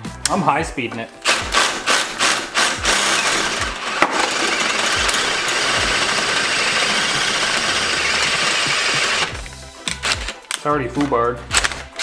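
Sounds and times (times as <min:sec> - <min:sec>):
cordless drill boring metal: 0:01.2 - 0:09.4.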